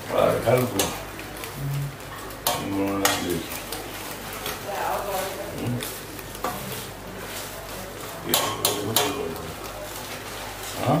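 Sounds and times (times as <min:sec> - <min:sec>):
spatula scraping frying pan: 0:02.2 - 0:09.2
spatula clanking against pan: 0:08.3 - 0:09.2.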